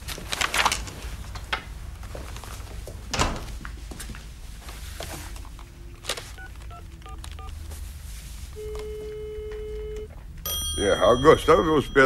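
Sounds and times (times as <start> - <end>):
telephone dial tone: 6.4 - 7.6, 8.6 - 10.6
telephone ringing tone: 8.6 - 12.0
touch-tone key beeps: 8.6 - 12.0.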